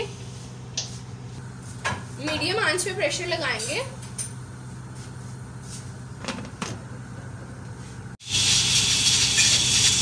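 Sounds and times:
steam hissing from valve: 0:08.2 - 0:10.0.

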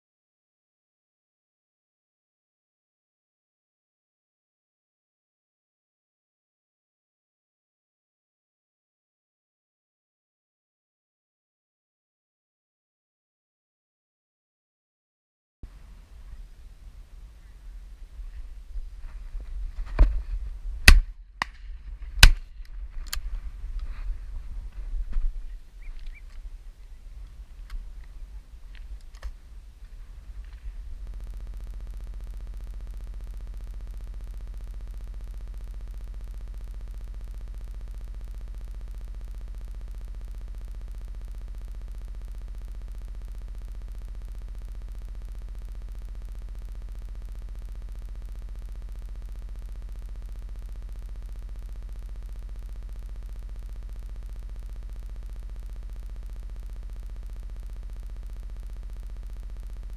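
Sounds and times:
outdoor field sound: 0:15.6 - 0:59.9
electronic hum with buzz: 0:15.7 - 0:59.9.

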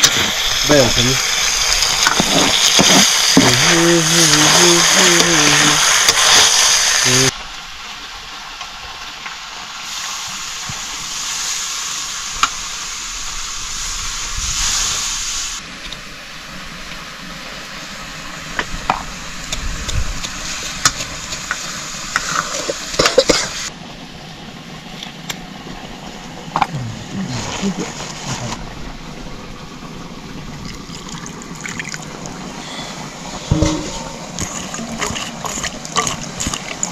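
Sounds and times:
food sizzling in a pan: 0:00.0 - 0:23.8, 0:29.8 - 0:36.9
spoon scraping and knocking a pan: 0:33.5 - 0:36.5.

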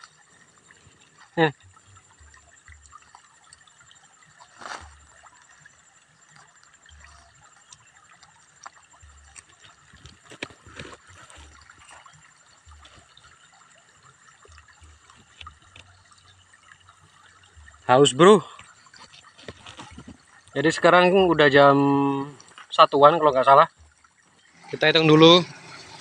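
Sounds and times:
faint trickling water: 0:00.0 - 0:26.0
leaf rustling: 0:04.5 - 0:05.0.

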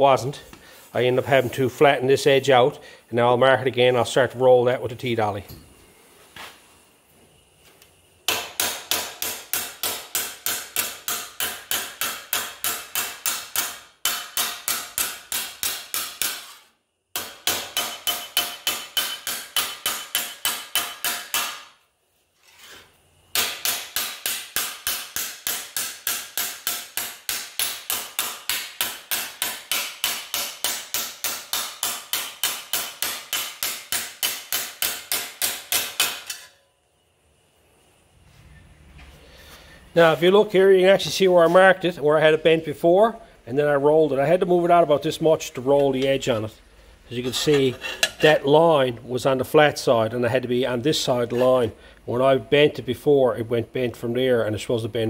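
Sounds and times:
hammer striking metal: 0:08.3 - 0:16.6, 0:17.2 - 0:21.8, 0:23.3 - 0:36.6.

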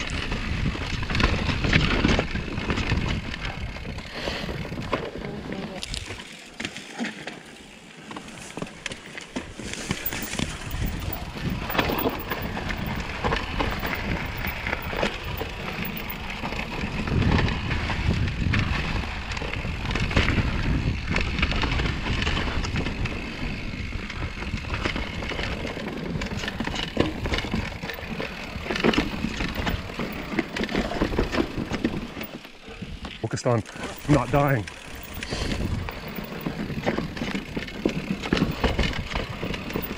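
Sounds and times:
bike tyres crunching over dirt: 0:00.0 - 0:39.9
bike clattering over rocks: 0:08.1 - 0:17.6, 0:24.8 - 0:39.9.

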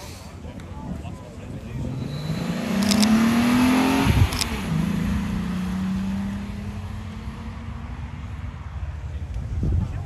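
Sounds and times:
car accelerating away: 0:01.7 - 0:08.6.

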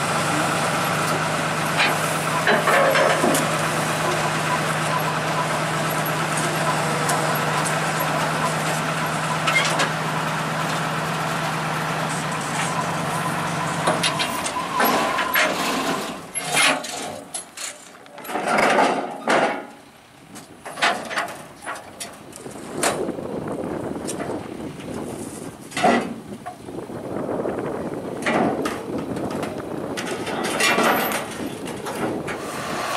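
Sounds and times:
harvester engine running: 0:00.0 - 0:32.9
metallic knocks and clatter: 0:01.8 - 0:04.1, 0:12.4 - 0:19.8, 0:20.6 - 0:22.2, 0:25.7 - 0:26.6, 0:28.2 - 0:32.4.

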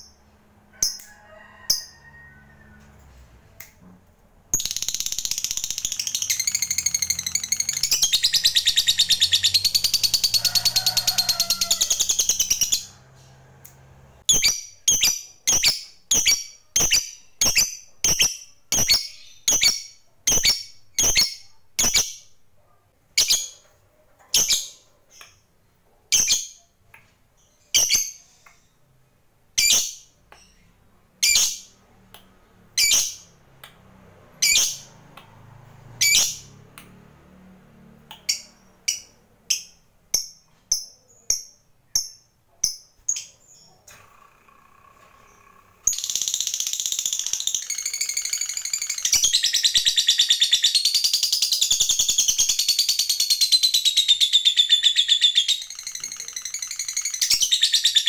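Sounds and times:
lovebird chattering trill: 0:04.6 - 0:10.4
high sharp bird chirps: 0:04.6 - 0:13.0, 0:44.5 - 0:58.0.

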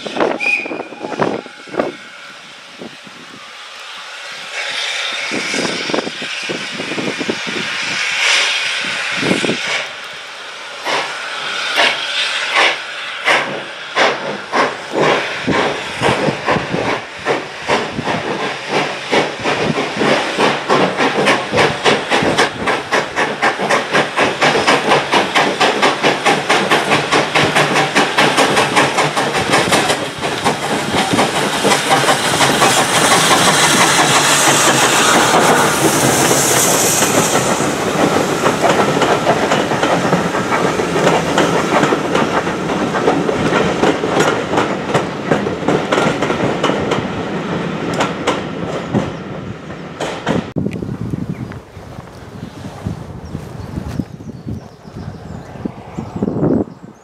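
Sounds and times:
steam hissing: 0:00.0 - 0:50.6
steam locomotive exhaust chuffs: 0:00.0 - 0:55.0.

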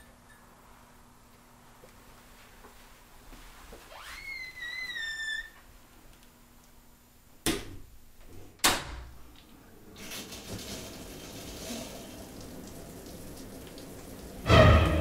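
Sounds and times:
door hinge squeaking: 0:04.0 - 0:05.7
steady hiss: 0:09.8 - 0:15.0.

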